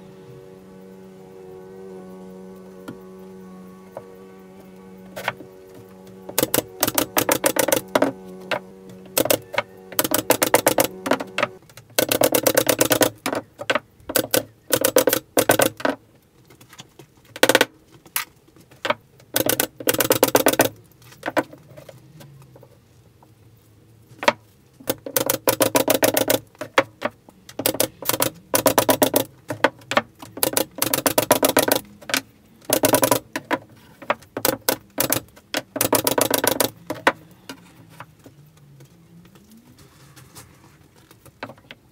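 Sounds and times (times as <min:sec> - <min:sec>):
steady low hum: 0:00.0 - 0:11.6
pin nailer firing: 0:06.3 - 0:13.2, 0:14.1 - 0:15.8, 0:19.4 - 0:20.7, 0:27.6 - 0:29.3, 0:30.4 - 0:31.8, 0:32.7 - 0:33.2, 0:34.4 - 0:36.8.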